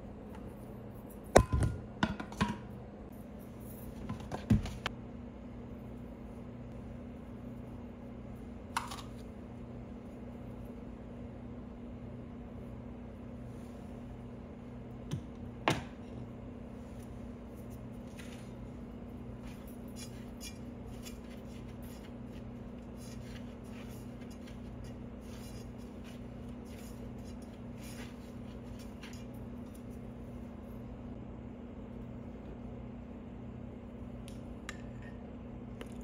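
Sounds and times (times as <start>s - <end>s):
steady low hum: 0.0s - 36.0s
hand mixing flour in bowl: 16.8s - 30.6s.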